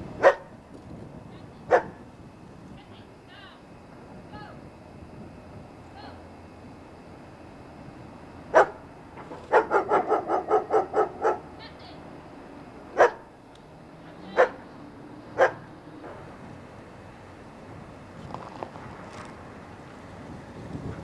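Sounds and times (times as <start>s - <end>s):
dog barking: 0.2s - 0.5s, 1.7s - 2.0s, 8.5s - 8.8s, 9.5s - 11.5s, 13.0s - 13.3s, 14.2s - 14.7s, 15.4s - 15.7s.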